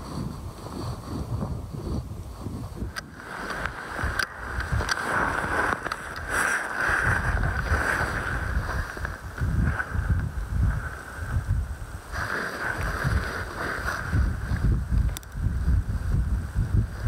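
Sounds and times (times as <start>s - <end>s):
wind buffeting microphone: 0.0s - 17.0s
faint clicks: 2.9s - 6.7s, 13.8s - 15.4s.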